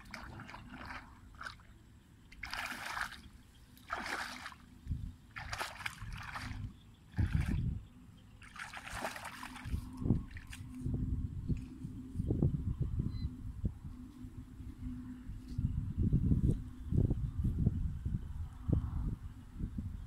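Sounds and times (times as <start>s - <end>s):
wading through muddy water: 0.0s - 10.9s.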